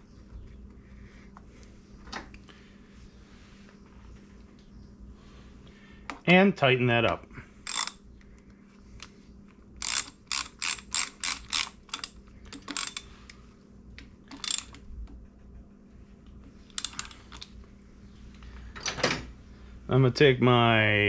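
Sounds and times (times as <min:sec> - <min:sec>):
ratchet wrench clicking: 0:07.6 - 0:08.0, 0:09.8 - 0:13.1, 0:14.3 - 0:14.8, 0:16.7 - 0:17.4.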